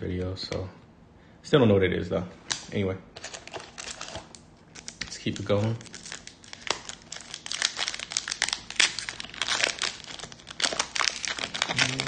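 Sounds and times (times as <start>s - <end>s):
card pack wrapper crinkling: 3.2s - 12.0s.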